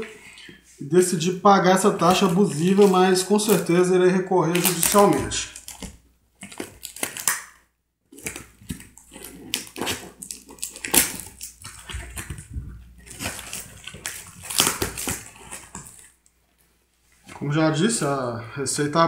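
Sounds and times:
cardboard and tape tearing: 2.0 - 3.8, 4.4 - 16.2.

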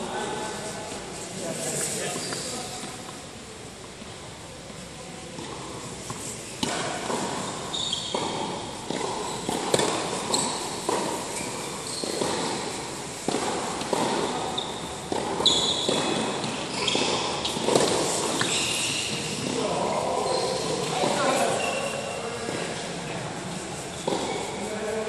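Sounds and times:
shoes squeaking on court: 0.6 - 3.2, 5.4 - 22.8, 23.8 - 24.7
racket striking tennis ball: 5.4 - 19.6, 24.0 - 24.5
tennis ball bouncing: 5.4 - 19.6.

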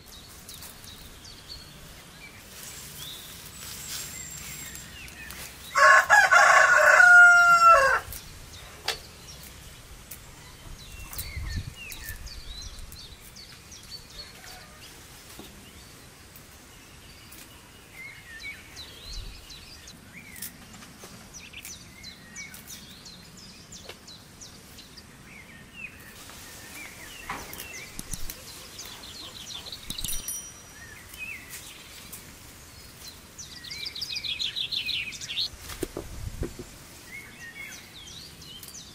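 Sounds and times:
small birds chirping: 0.0 - 38.9
rooster crowing: 5.7 - 8.1, 14.2 - 15.0.

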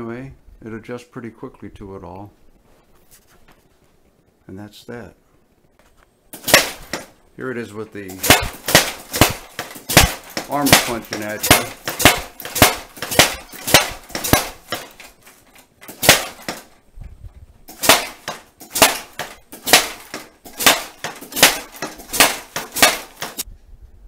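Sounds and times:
punches smacking a heavy bag: 6.4 - 7.1, 8.1 - 16.8, 17.7 - 23.4
padded arms swinging and clacking: 6.4 - 7.2, 8.1 - 23.5.

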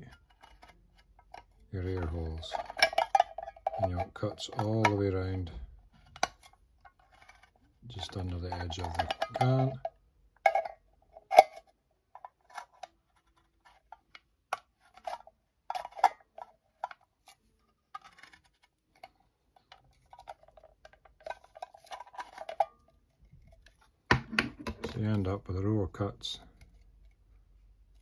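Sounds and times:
can opener clicking and scraping: 0.0 - 5.5, 6.1 - 9.9, 10.5 - 17.0, 18.0 - 22.8.

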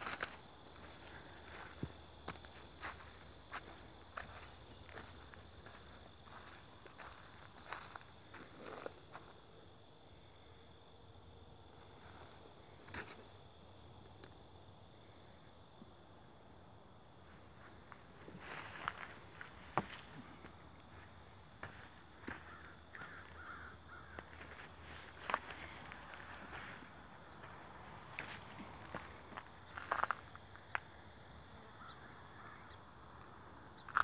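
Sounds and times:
footsteps on gravel: 0.0 - 9.0, 18.2 - 30.4
insect chirring: 17.9 - 32.9.

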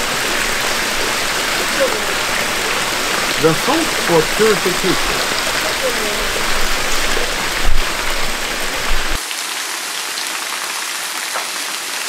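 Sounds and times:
waterfall pouring and splashing: 0.0 - 12.0.

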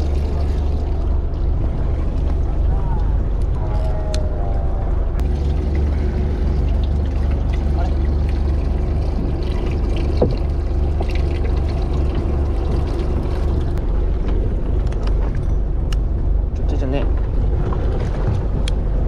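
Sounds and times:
water pouring and trickling: 0.0 - 2.4, 5.2 - 13.8
boat engine running: 0.0 - 19.0.

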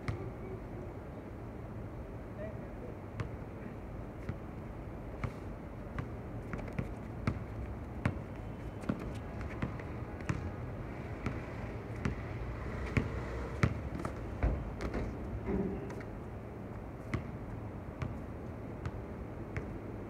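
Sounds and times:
basketball bouncing on hard court: 6.0 - 10.4, 12.9 - 13.8.

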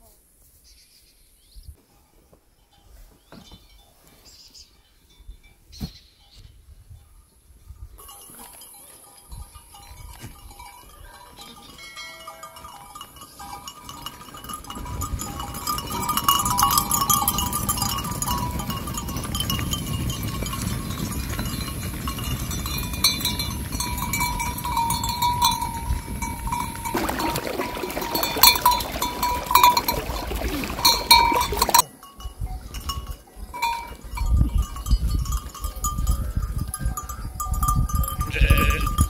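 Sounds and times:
hooves on dry ground: 8.0 - 39.0
livestock bells ringing: 8.0 - 39.0
sheep and goats bleating: 38.2 - 39.0.

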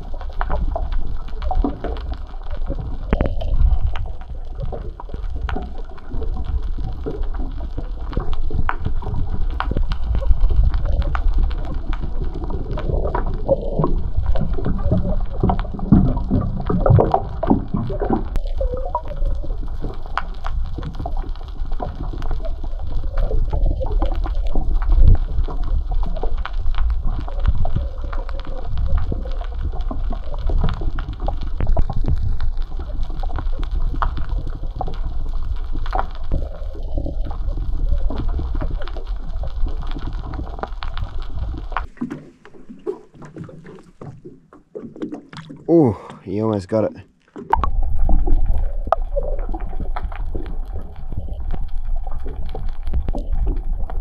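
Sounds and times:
water sloshing and gurgling: 0.0 - 54.0.

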